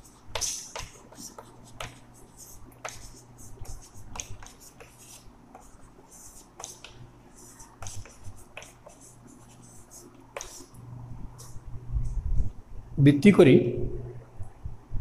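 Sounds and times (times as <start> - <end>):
chalk tapping and scratching on board: 0.0 - 10.8
faint low hum: 0.0 - 15.0.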